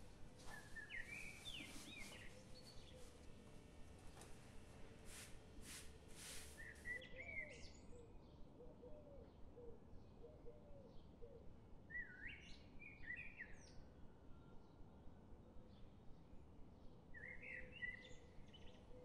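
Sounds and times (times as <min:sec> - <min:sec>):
fabric rustling: 0:00.4 - 0:03.2
bird chirping: 0:00.5 - 0:03.2.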